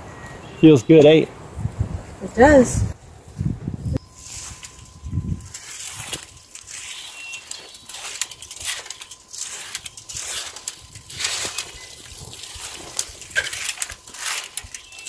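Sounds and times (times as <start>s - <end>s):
rake scraping soil and leaves: 4.0s - 15.0s.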